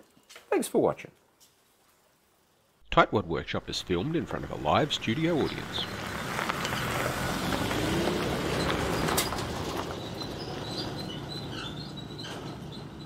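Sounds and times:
vehicle driving past on dirt road: 3.6s - 13.0s.

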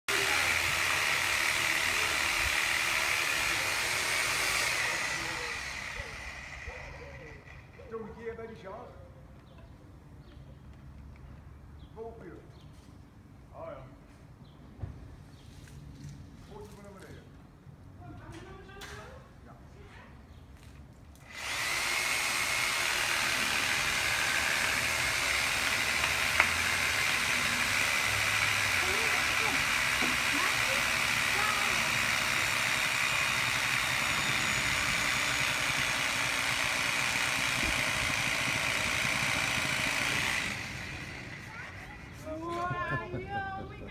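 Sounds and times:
power saw cutting tree trunk: 0.1s - 8.0s, 21.2s - 42.4s
sharp wood crack: 25.3s - 31.2s.

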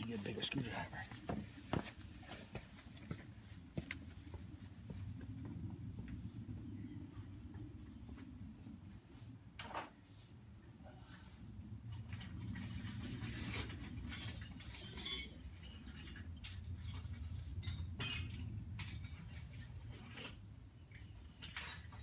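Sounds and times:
steady low hum: 0.0s - 21.6s
metal tools clinking: 11.9s - 22.0s.

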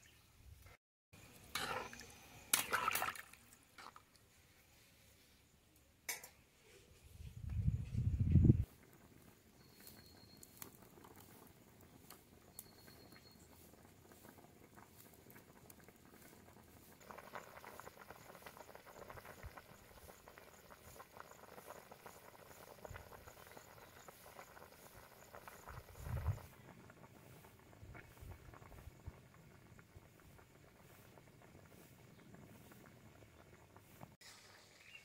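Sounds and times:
curry bubbling in pot: 8.7s - 34.2s.

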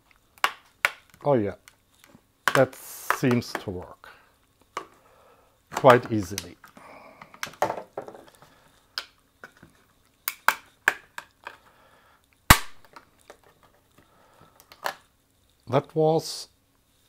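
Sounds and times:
hard plastic snap: 0.4s - 1.8s, 2.5s - 3.7s.

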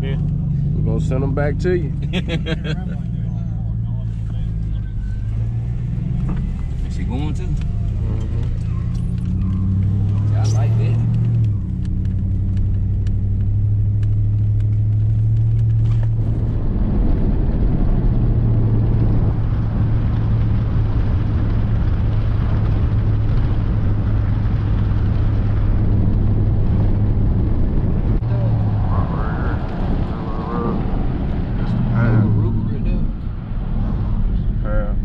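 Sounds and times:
truck engine drone: 0.0s - 35.0s
tyre and road noise: 0.0s - 35.0s.

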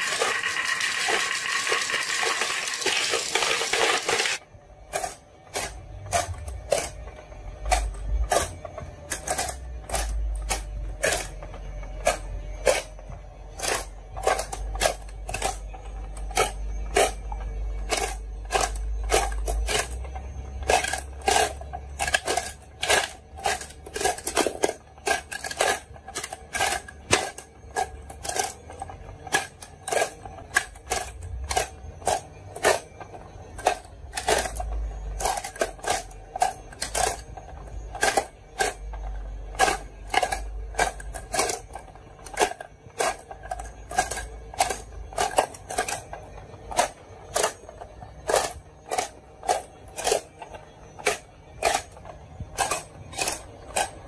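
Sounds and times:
marbles rattling down wooden track: 0.0s - 4.4s.

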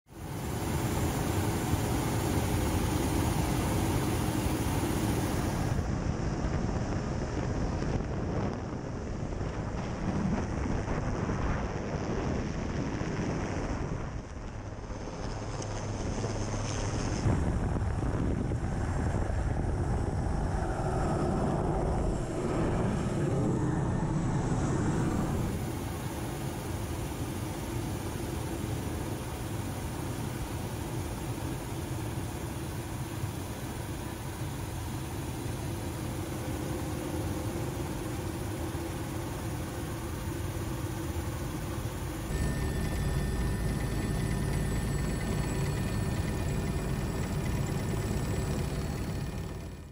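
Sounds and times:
helicopter engine and rotor: 0.1s - 6.0s, 18.6s - 49.9s
wind rushing: 17.3s - 25.6s.

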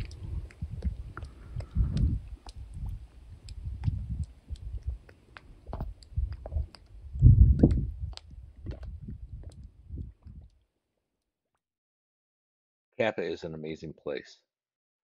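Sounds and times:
wind buffeting microphone: 0.0s - 10.5s
clicks and crackles: 0.0s - 10.6s.

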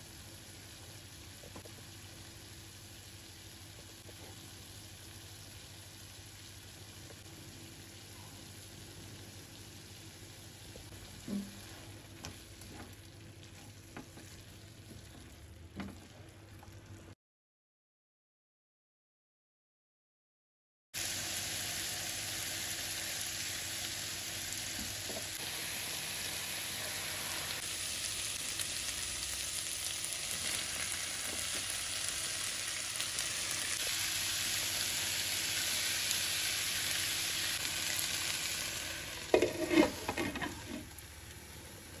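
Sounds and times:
vegetables sizzling in a wok: 0.0s - 17.1s, 21.0s - 42.0s
spatula stirring in a wok: 39.2s - 41.0s
glass lid clattering on pan: 39.3s - 40.8s.

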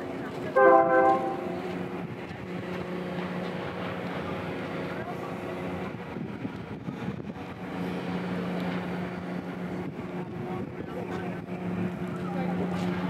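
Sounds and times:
machinery humming: 0.3s - 4.6s.

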